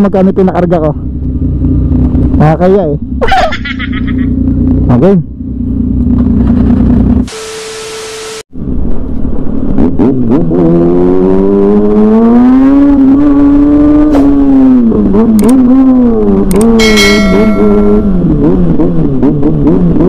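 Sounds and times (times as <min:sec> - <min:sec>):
motorcycle engine revving: 0:09.8 - 0:20.0
short high ringing: 0:16.8 - 0:18.4.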